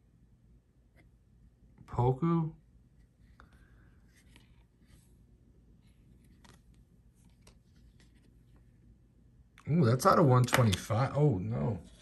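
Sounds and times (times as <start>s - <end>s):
trading cards shuffling: 5.8s - 8.7s.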